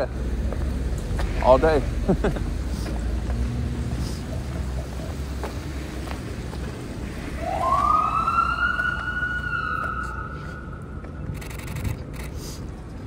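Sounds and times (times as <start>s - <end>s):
low rumble of street traffic: 0.0s - 13.0s
emergency vehicle siren wailing: 7.1s - 11.4s.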